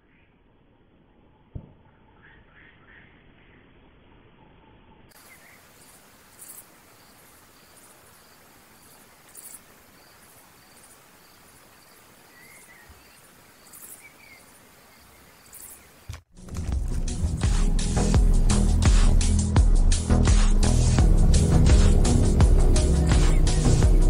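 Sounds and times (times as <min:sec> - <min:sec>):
crickets chirping: 0:05.1 - 0:16.3
insect buzzes: 0:05.2 - 0:16.2.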